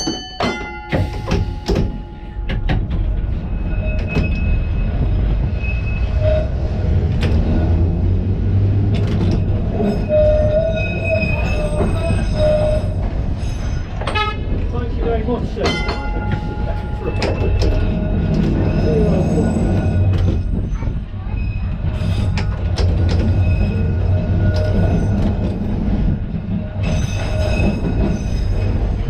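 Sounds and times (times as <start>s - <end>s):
tram rumbling on rails: 0.0s - 29.0s
wheels squealing: 3.4s - 14.5s, 16.0s - 25.9s, 26.5s - 29.0s.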